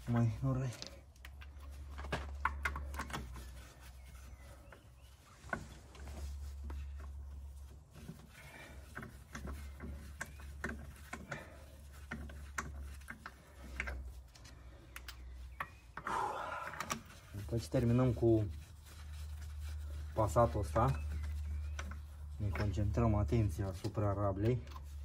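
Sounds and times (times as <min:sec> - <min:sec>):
metallic clicks of wheel bolts: 0:00.1 - 0:03.6, 0:08.9 - 0:17.2.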